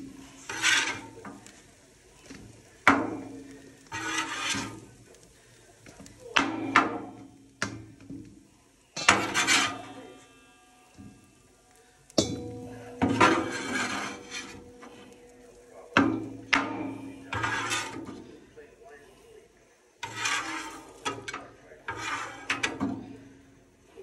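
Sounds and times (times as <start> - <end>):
metal scraper scraping bowl: 0.4 - 1.2, 3.9 - 4.9, 9.0 - 10.1, 12.3 - 14.9, 16.3 - 18.2, 20.0 - 23.0
bowl ringing: 9.6 - 17.4.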